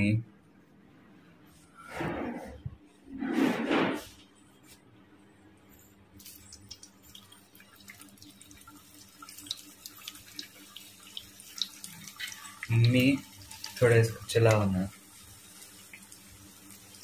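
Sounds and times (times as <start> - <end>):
dumplings deep-frying in oil: 6.1 - 17.0.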